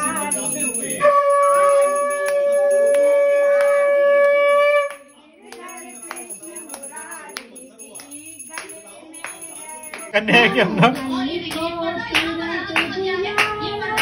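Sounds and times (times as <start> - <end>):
quiet voices: 0.0 - 14.0
conch shell blown: 1.0 - 5.1.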